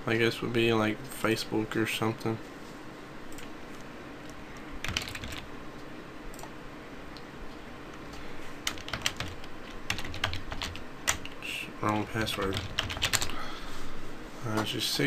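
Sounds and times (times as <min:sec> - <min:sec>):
typing on computer keyboard: 0:04.8 - 0:05.5, 0:08.7 - 0:11.4, 0:12.2 - 0:13.3.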